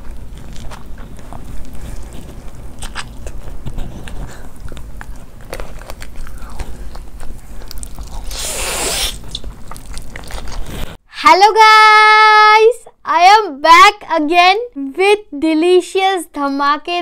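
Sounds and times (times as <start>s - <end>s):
person chewing food: 0.0s - 11.0s.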